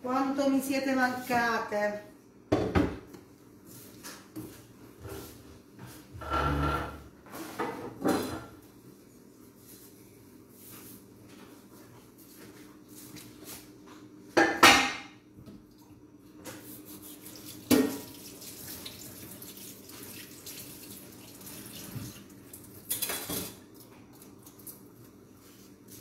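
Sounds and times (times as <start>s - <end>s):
kitchenware clattering: 14.4s - 15.2s, 22.8s - 23.7s.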